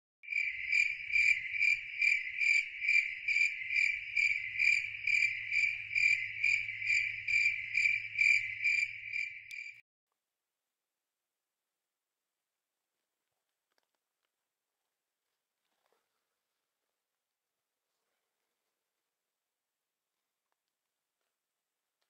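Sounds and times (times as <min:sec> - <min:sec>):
insect buzzing: 0:00.3 - 0:09.8.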